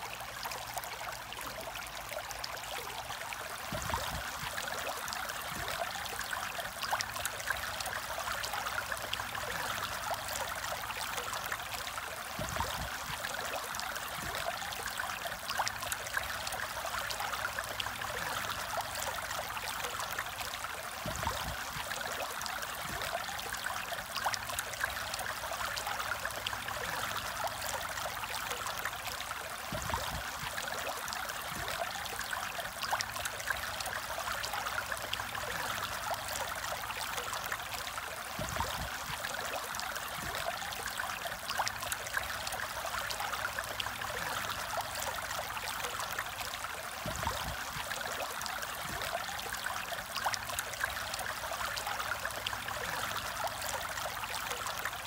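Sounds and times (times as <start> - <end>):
aquarium water trickling: 0.0 - 55.0.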